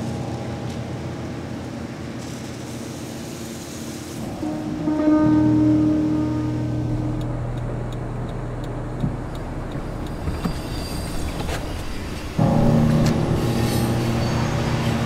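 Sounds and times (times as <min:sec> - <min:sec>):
car engine humming: 0:05.3 - 0:13.4.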